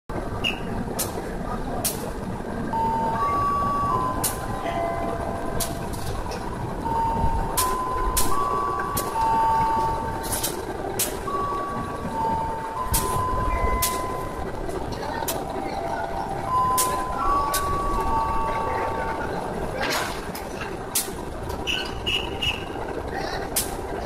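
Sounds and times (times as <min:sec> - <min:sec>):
diesel locomotive idling: 0:00.1 - 0:24.0
electronic beeping tones: 0:02.7 - 0:06.0, 0:06.8 - 0:10.4, 0:11.0 - 0:19.5.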